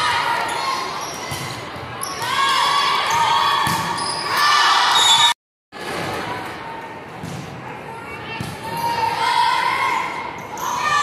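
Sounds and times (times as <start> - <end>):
sneakers squeaking: 0.4 - 5.4.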